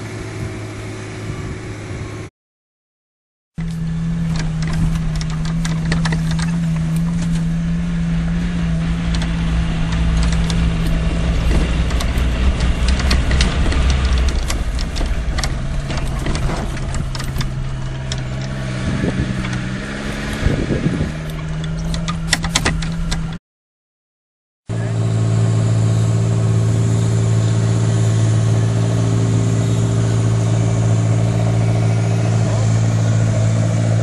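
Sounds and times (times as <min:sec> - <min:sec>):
vehicle engine running: 0:00.0 - 0:02.3, 0:03.6 - 0:23.4, 0:24.7 - 0:34.0
vehicle knocks and rattles: 0:03.6 - 0:23.4.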